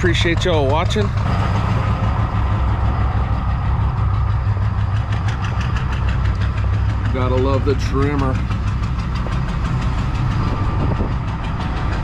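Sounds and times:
pickup engine idling: 0.0 - 12.0.

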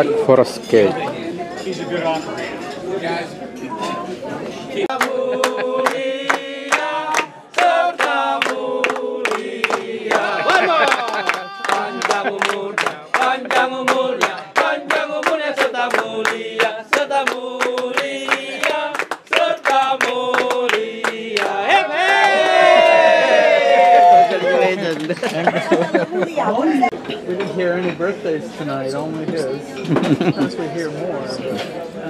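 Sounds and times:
group singing in chorus: 4.7 - 23.7
hands clapping along: 4.9 - 23.0, 24.2 - 25.8.

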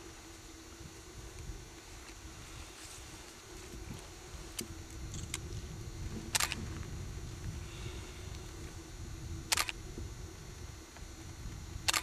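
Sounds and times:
low steady rumble: 0.0 - 12.0
camera shutter firing: 6.3 - 6.6, 9.5 - 9.8.

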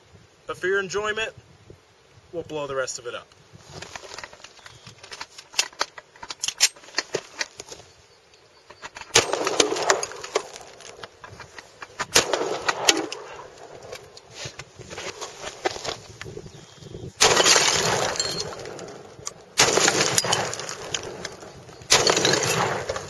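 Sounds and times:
clattering debris: 3.7 - 7.8, 8.6 - 16.1, 17.2 - 23.0
gunshots: 9.1 - 10.9, 11.8 - 14.0, 17.2 - 23.0.

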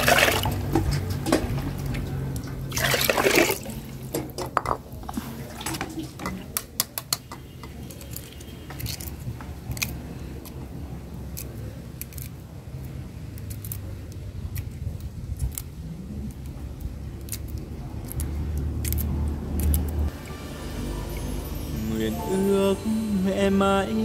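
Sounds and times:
eggshell cracking and peeling: 6.6 - 10.6, 11.2 - 20.1.

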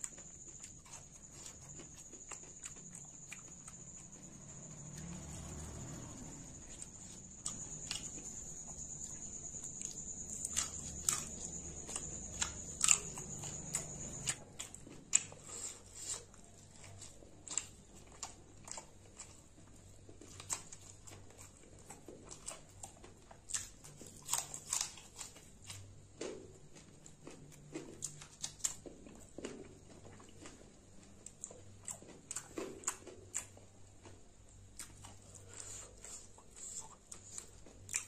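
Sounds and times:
chewing and mouth smacks: 0.0 - 38.0.

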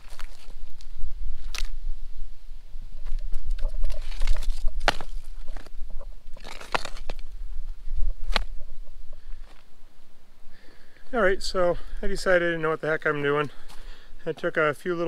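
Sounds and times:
rocks knocking and scraping: 0.0 - 1.8, 3.0 - 9.7
steady low rumble: 0.0 - 14.9.

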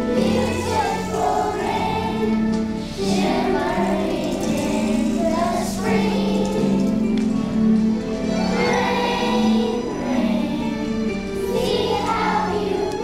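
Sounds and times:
children's choir singing: 0.0 - 13.0
musical accompaniment: 0.0 - 13.0.

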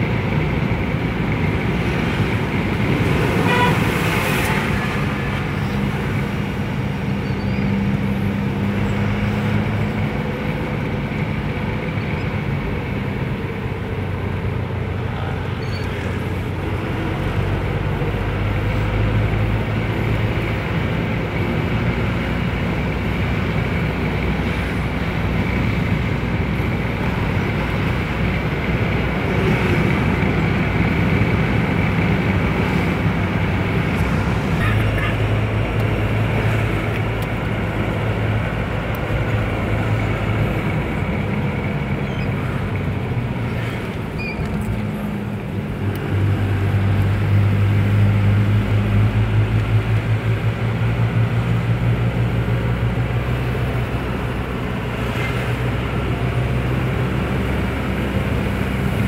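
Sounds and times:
vehicle engine drone: 0.0 - 59.0.

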